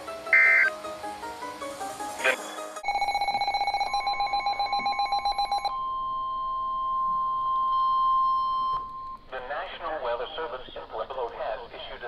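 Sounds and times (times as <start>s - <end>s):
pulsing electronic alarm beep: 0.3s - 0.7s, 2.8s - 9.2s
steady high warning tone: 0.3s - 0.7s, 2.8s - 9.3s.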